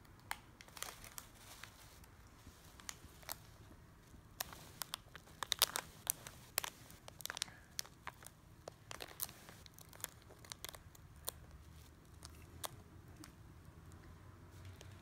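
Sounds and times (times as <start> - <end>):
plastic packet crinkling: 0.6 - 2.0, 4.4 - 12.8.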